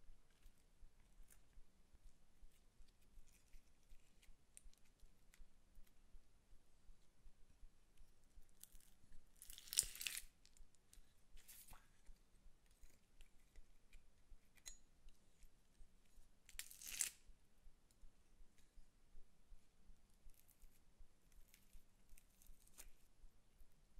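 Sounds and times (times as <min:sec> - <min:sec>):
slime squishing and crackling: 0:08.6 - 0:10.3.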